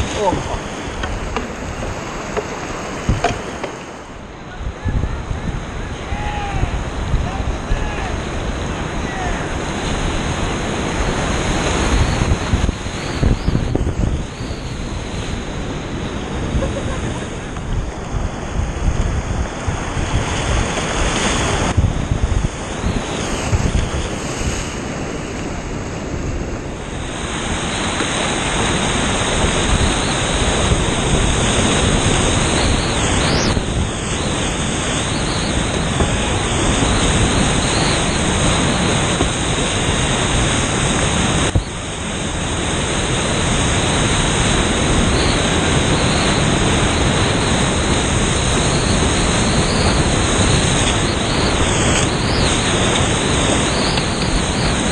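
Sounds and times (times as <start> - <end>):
water hitting canoe hull: 0.0 - 4.2
whitewater rapids rushing: 0.0 - 13.5, 26.8 - 54.9.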